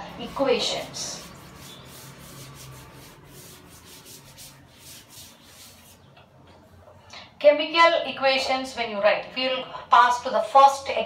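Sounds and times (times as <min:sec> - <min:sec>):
duster rubbing a blackboard: 0:00.1 - 0:06.1.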